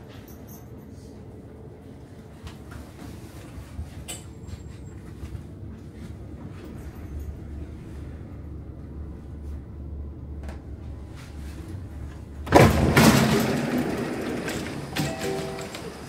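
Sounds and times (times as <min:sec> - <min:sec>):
train humming at platform: 0:00.0 - 0:16.0
train doors sliding open: 0:10.3 - 0:16.0.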